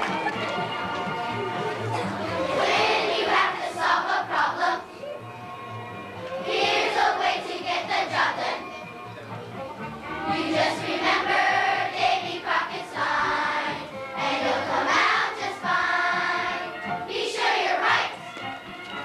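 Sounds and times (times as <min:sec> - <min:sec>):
musical accompaniment: 0:00.0 - 0:19.0
children's choir singing: 0:01.9 - 0:05.0, 0:06.4 - 0:08.8, 0:10.2 - 0:18.3.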